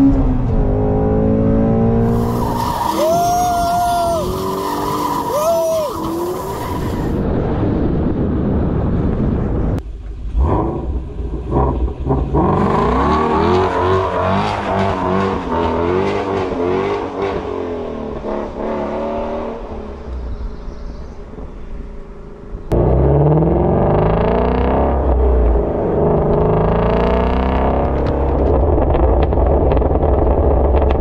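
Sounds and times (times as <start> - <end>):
car exhaust revving: 0.0 - 7.2, 10.2 - 19.7.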